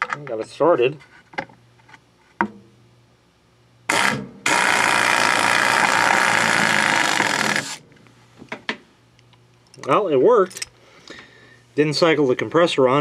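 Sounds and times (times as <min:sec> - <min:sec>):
air impact screwdriver driving screw: 0:03.9 - 0:07.8.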